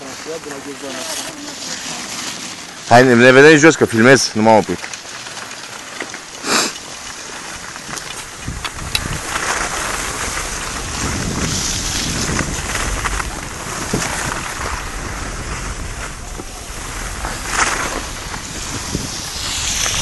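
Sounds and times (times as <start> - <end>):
skis sliding over snow: 0.0 - 20.0
wind buffeting microphone: 7.5 - 20.0.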